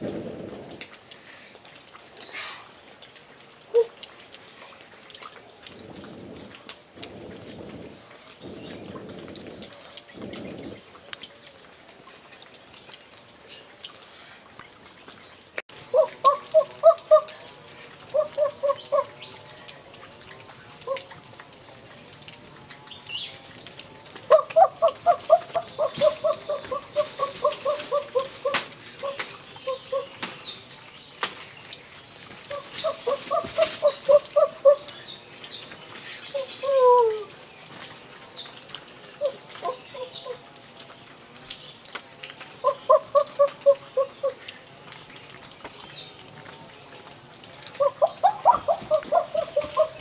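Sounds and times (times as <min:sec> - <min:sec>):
wood fire crackling: 0:00.0 - 0:36.3
bird calling: 0:15.9 - 0:19.3, 0:24.3 - 0:30.4, 0:32.5 - 0:35.0, 0:36.2 - 0:37.3, 0:39.2 - 0:40.4, 0:42.6 - 0:44.4, 0:47.8 - 0:50.0.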